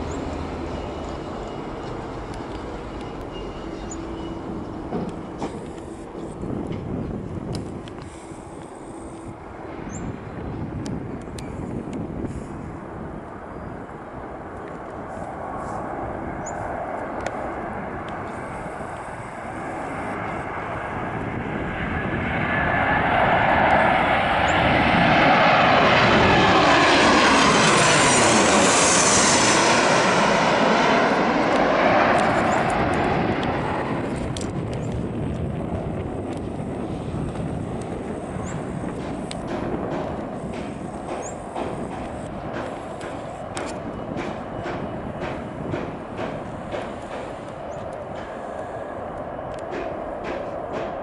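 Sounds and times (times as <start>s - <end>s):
jet engine whine sliding down: 0.0s - 51.0s
jet engines passing overhead: 0.0s - 51.0s.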